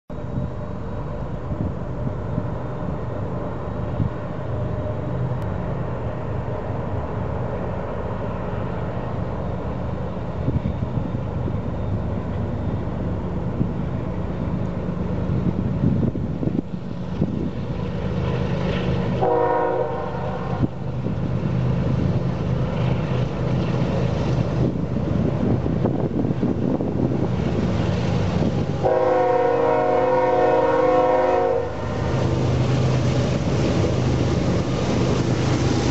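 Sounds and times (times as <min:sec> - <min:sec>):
diesel locomotive rumble: 0:00.1 - 0:35.9
train air horn: 0:19.2 - 0:20.7, 0:28.8 - 0:32.0.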